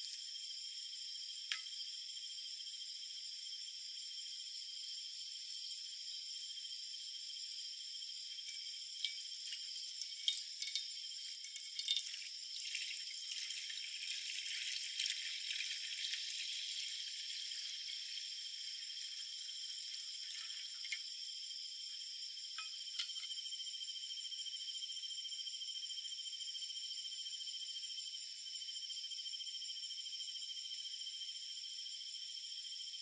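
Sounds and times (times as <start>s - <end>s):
insect chorus: 0.0s - 33.0s
water pouring into frying pan: 8.3s - 21.0s.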